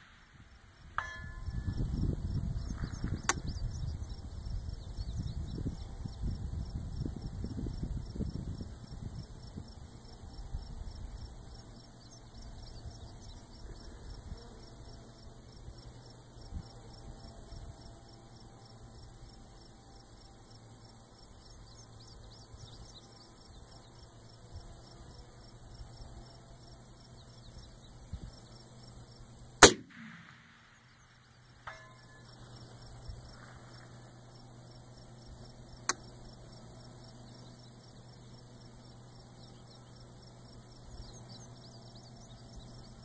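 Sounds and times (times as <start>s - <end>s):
crickets chirping: 0.0s - 43.0s
wind rumbling on microphone: 0.4s - 11.5s
rifle shot: 29.6s - 31.0s.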